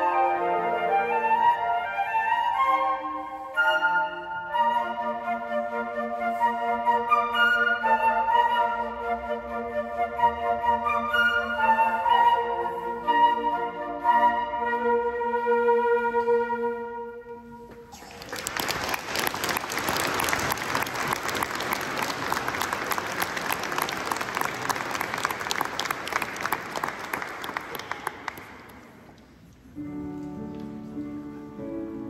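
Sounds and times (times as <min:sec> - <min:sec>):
flute ensemble sustained notes: 0:00.0 - 0:17.8
audience applauding: 0:17.9 - 0:29.1.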